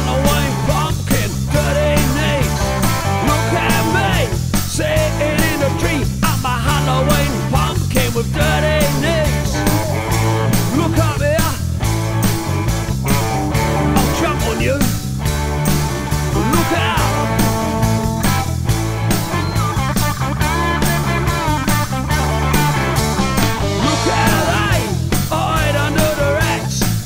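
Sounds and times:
man singing: 0.0 - 9.7, 10.6 - 11.7, 13.8 - 15.0, 16.3 - 18.1, 23.8 - 27.0
rock song with drums and guitar: 0.0 - 27.0.

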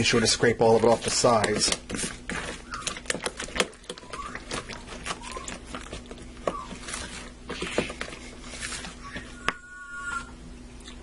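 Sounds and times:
spatula scraping bowl: 0.0 - 9.4.

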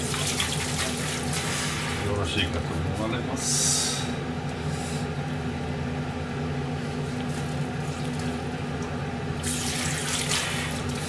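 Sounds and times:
tap water running into sink: 0.0 - 2.0
steady low hum: 0.0 - 11.0.

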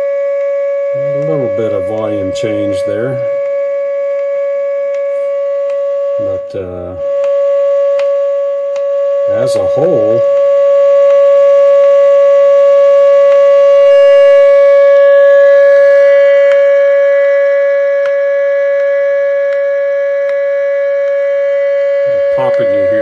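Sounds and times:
steady test tone: 0.0 - 23.0
soft interference clicks: 4.9 - 5.8, 7.2 - 8.9.

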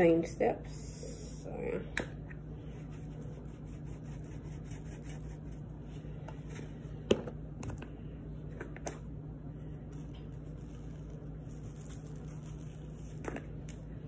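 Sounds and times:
pepper shaker rustling: 9.9 - 13.2.

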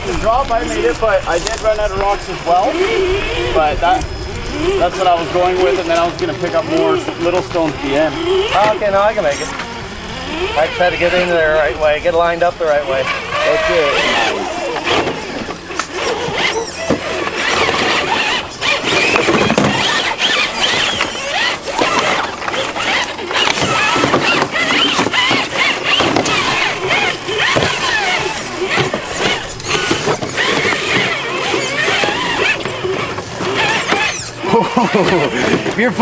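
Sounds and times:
electric motors whining: 0.0 - 36.0
toy trucks knocking on rock: 13.0 - 35.8.

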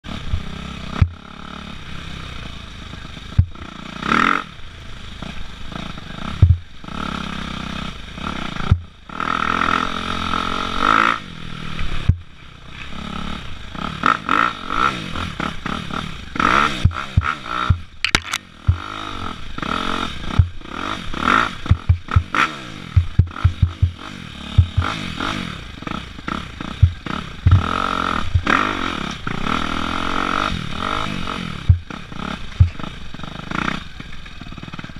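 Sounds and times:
dirt bike engine revving: 0.1 - 34.9
bike knocking and clattering: 3.3 - 3.6, 6.4 - 6.7, 16.8 - 19.0, 21.6 - 22.4, 23.0 - 25.0, 26.7 - 29.3, 31.6 - 32.0, 32.6 - 32.9.

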